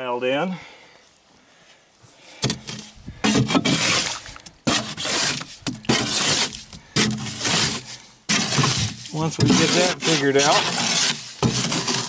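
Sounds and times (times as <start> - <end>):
shovel scraping and slopping mud: 2.4 - 12.0.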